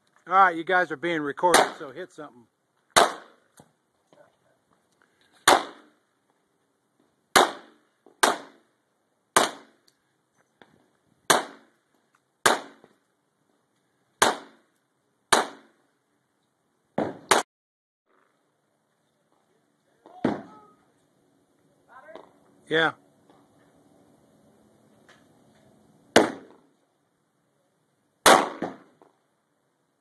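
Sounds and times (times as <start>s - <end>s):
pistol shots with echo: 3.0s - 3.4s, 5.5s - 5.9s, 7.4s - 8.6s, 28.2s - 28.9s.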